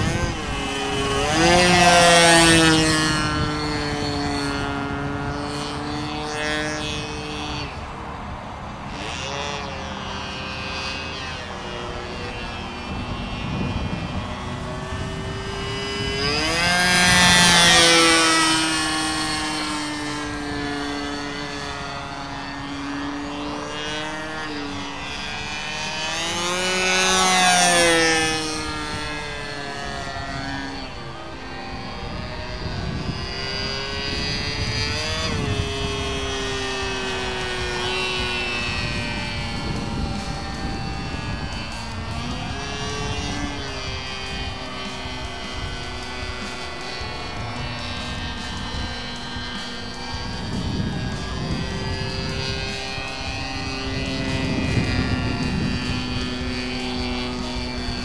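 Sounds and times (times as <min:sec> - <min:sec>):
model airplane engine buzzing: 0:00.0 - 0:58.0.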